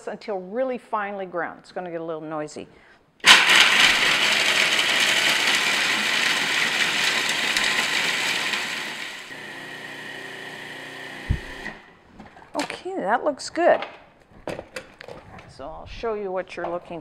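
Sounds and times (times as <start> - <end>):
food processor grinding nuts: 3.2 - 11.9.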